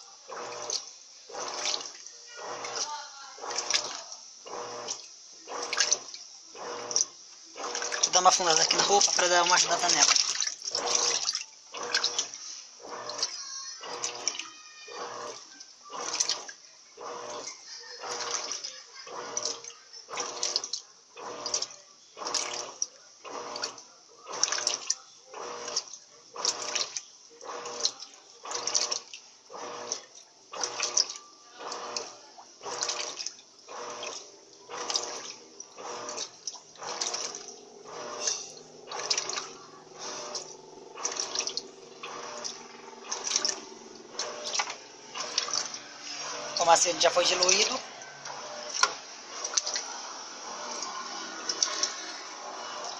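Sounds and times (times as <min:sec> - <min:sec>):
washing machine motor hum: 0:00.0 - 0:52.9
washing machine water sloshing: 0:00.0 - 0:52.9.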